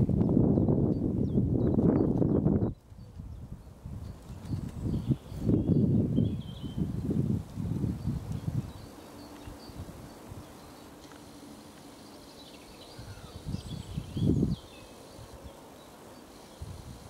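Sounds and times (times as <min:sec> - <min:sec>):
faint bird chirps: 0:11.9 - 0:16.8.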